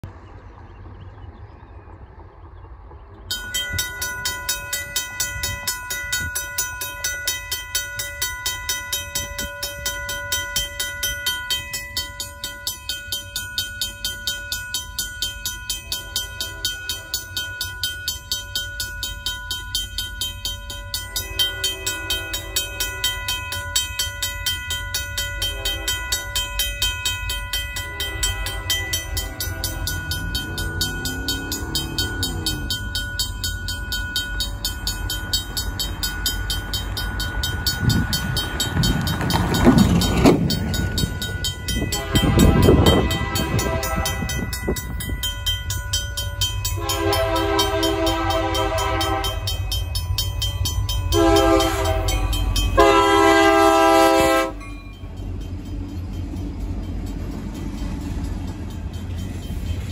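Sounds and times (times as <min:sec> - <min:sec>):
mechanical crossing bell ringing: 0:03.3 - 0:59.9.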